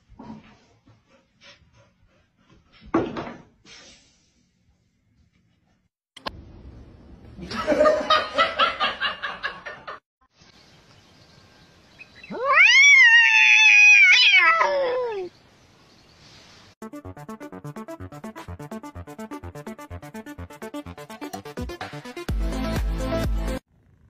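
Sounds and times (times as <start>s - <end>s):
cat yowling: 12.3s - 15.3s.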